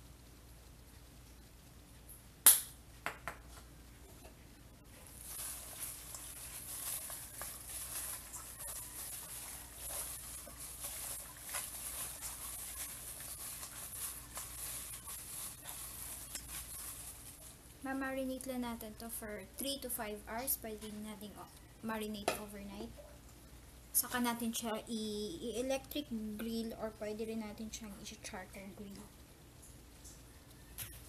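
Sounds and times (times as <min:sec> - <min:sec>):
wet squishing of meat in marinade: 0:05.1 - 0:17.6.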